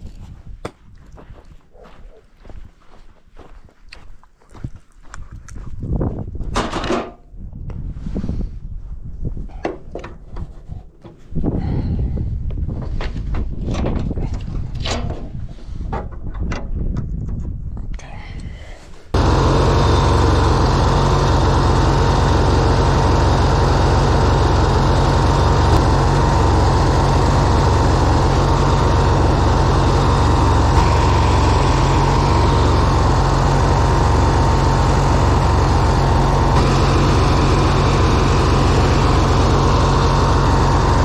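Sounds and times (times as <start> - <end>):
riding mower engine running: 19.2 - 41.0
steady whine: 19.2 - 41.0.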